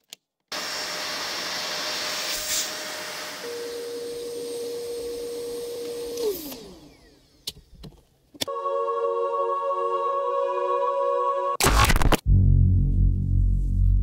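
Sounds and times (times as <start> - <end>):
vacuum cleaner running: 0.5 - 7.7.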